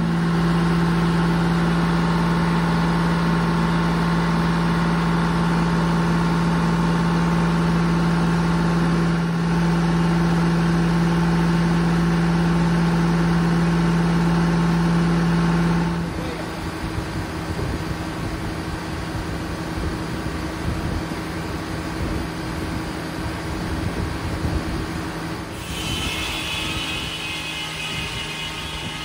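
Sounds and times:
diesel engine droning: 0:00.0 - 0:29.0.

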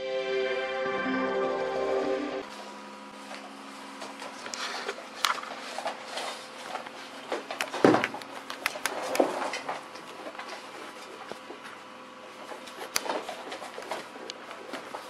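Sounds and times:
paws scratching on hard floor: 0:02.5 - 0:11.8, 0:12.4 - 0:15.0.

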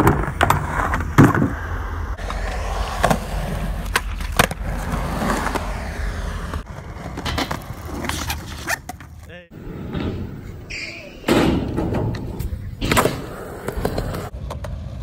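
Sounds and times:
skateboard wheels rolling on concrete: 0:00.0 - 0:15.0
skateboard clacking on ground: 0:11.6 - 0:15.0.

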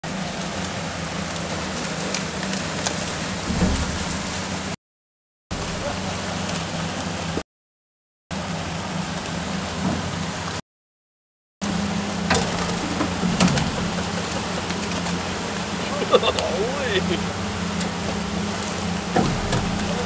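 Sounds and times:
boat wake rushing: 0:00.0 - 0:04.8, 0:05.5 - 0:07.4, 0:08.3 - 0:10.6, 0:11.6 - 0:20.0
outboard motors running: 0:00.0 - 0:04.8, 0:05.5 - 0:07.4, 0:08.3 - 0:10.6, 0:11.6 - 0:20.0
sharp knocks: 0:03.4 - 0:04.7, 0:19.2 - 0:20.0.

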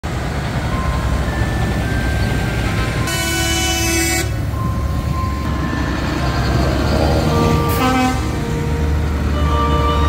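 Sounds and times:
tractor engines rumbling: 0:00.0 - 0:10.0
horn blast: 0:03.1 - 0:04.3, 0:07.3 - 0:10.0.

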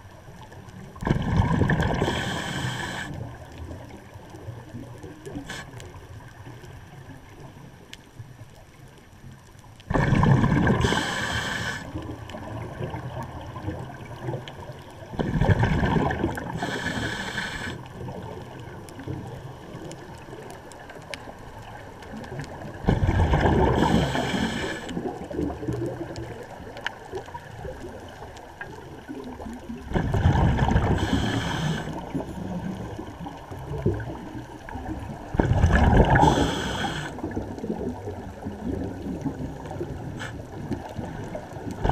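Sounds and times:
low murmur of water: 0:00.0 - 0:41.9
diver exhaling bubbles: 0:01.0 - 0:03.4, 0:09.9 - 0:14.4, 0:15.1 - 0:18.3, 0:22.8 - 0:26.4, 0:29.7 - 0:32.8, 0:34.8 - 0:41.1.

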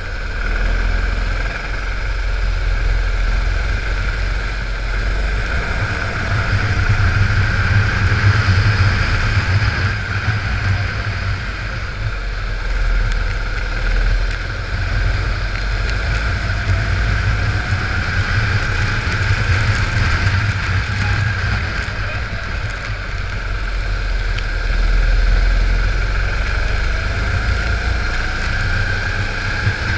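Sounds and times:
kart engine racing: 0:00.0 - 0:29.9
wind buffeting microphone: 0:03.5 - 0:24.9.

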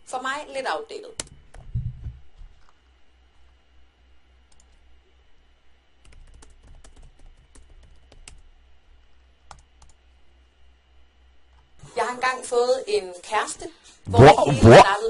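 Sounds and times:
steady low hum: 0:00.0 - 0:15.0
keyboard typing: 0:06.0 - 0:08.4.

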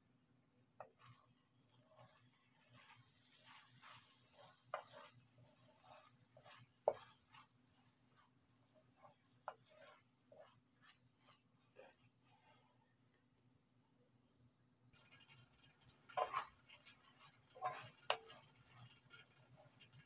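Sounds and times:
spatula scraping frying pan: 0:00.8 - 0:13.0, 0:15.0 - 0:20.0
spatula knocking on pan: 0:03.8 - 0:07.4.

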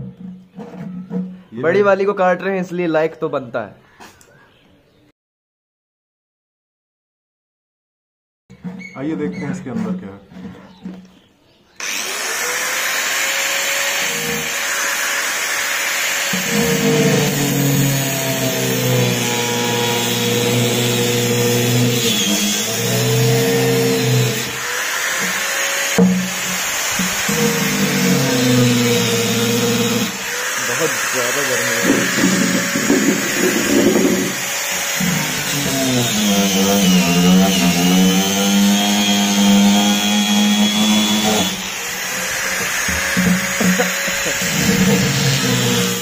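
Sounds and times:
angle grinder cutting plastic: 0:11.8 - 0:46.0.

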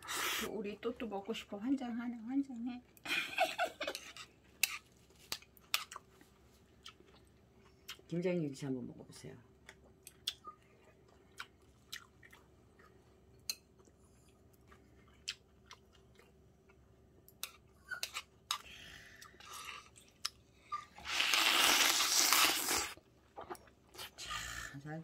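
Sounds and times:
person chewing crunchy food: 0:09.6 - 0:20.4, 0:21.0 - 0:24.2.

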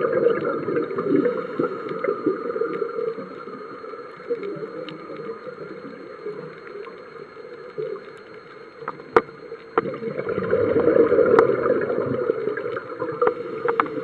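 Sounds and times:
regulator exhaling bubbles underwater: 0:00.0 - 0:05.4, 0:09.8 - 0:14.0.

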